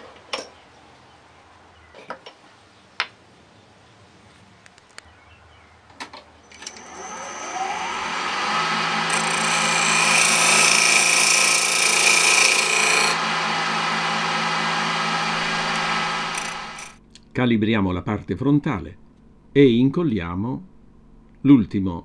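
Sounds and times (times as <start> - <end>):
wood lathe motor whine: 6.5 - 17.0.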